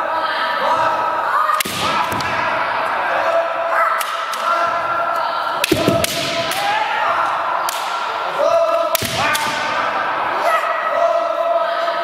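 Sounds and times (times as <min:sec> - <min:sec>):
fencers shouting: 0:00.0 - 0:12.0
bamboo sword strikes: 0:05.6 - 0:06.8.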